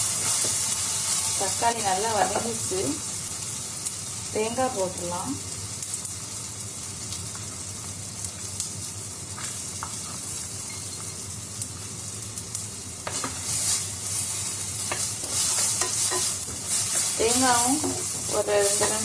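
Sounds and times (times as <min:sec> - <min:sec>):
food sizzling in oil: 0:00.0 - 0:19.0
spatula scraping pan: 0:13.1 - 0:19.0.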